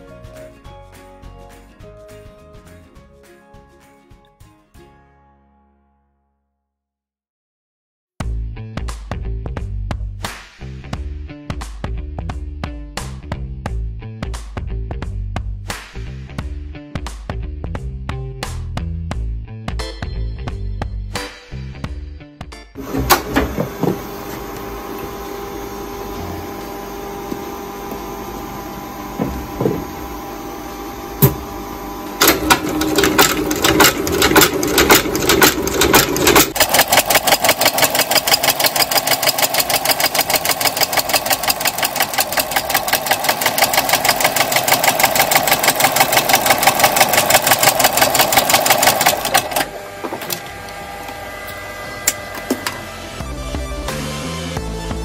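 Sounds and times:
machine motor humming: 0:22.8 - 0:53.4
stitching machine clattering: 0:32.2 - 0:50.4.

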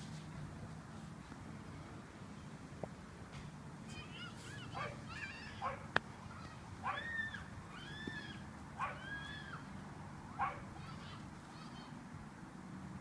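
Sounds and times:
high-pitched animal calls: 0:04.0 - 0:05.8, 0:06.8 - 0:09.6.

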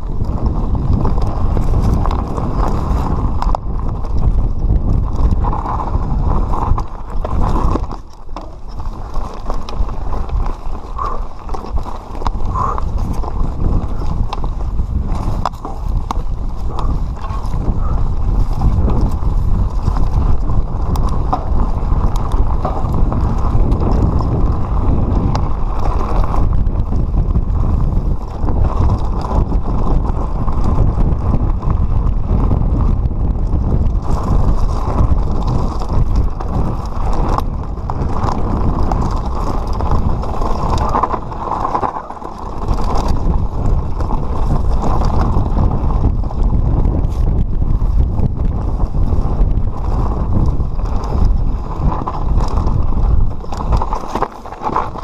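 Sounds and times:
tyres rolling over loose stones: 0:00.0 - 0:55.0
wind rumbling on microphone: 0:00.0 - 0:55.0
bike knocking: 0:00.2 - 0:31.2.

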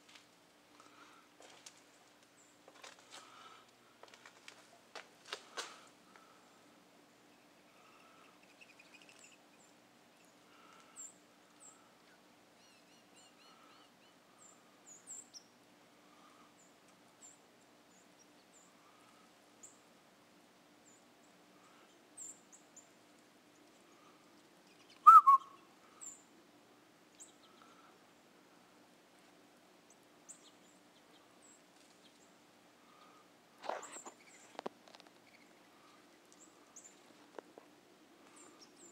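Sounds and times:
songbirds chip notes: 0:07.2 - 0:19.9, 0:20.8 - 0:26.3, 0:27.1 - 0:28.0, 0:29.8 - 0:37.5
bird trills: 0:24.8 - 0:26.2.

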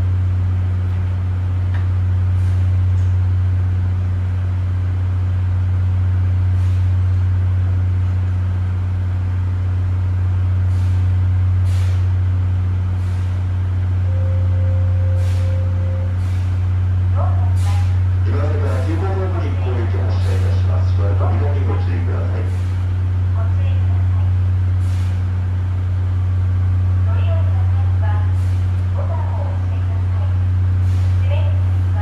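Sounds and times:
electric train humming: 0:00.0 - 0:32.0
brief steady tone: 0:14.1 - 0:16.3.

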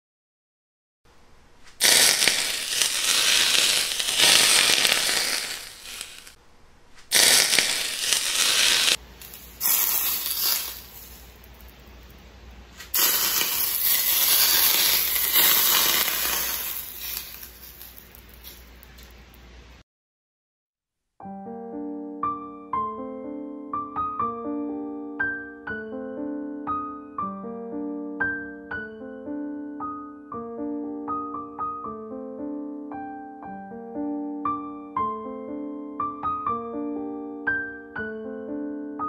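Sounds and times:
hot oil sizzling on food: 0:01.7 - 0:06.4, 0:07.1 - 0:11.8, 0:12.8 - 0:19.4.

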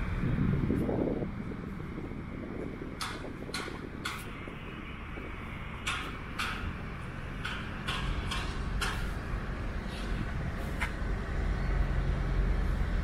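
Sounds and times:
machinery rumble: 0:00.0 - 0:13.0
sharp clanks: 0:03.0 - 0:04.4, 0:05.8 - 0:06.8, 0:07.4 - 0:09.2.

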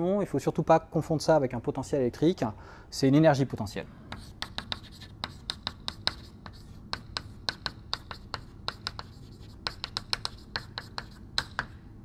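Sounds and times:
chalk tapping and scratching: 0:04.1 - 0:11.8.

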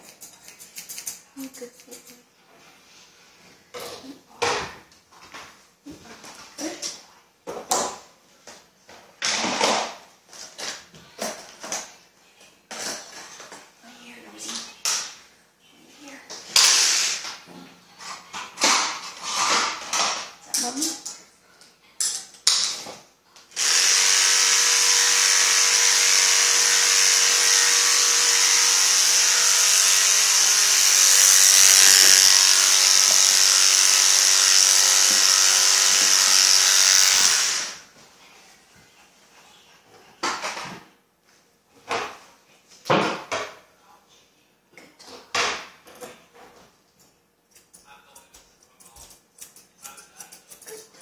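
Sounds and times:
electric dog clippers running: 0:16.6 - 0:17.2, 0:23.6 - 0:37.8.

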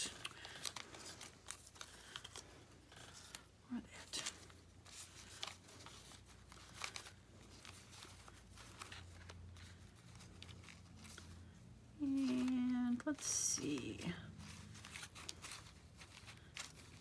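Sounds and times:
paper pieces rustling: 0:00.0 - 0:17.0.

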